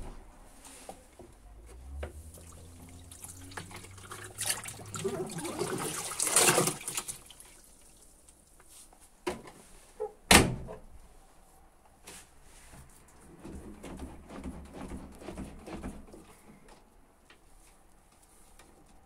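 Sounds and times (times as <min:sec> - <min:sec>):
water sloshing and dripping: 0:01.7 - 0:08.7
wet towels moved in washing drum: 0:01.8 - 0:07.6.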